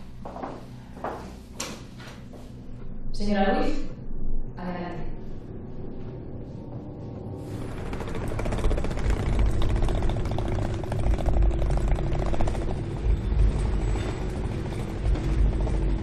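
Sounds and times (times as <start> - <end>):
quick regular pulsing: 7.5 - 16.0.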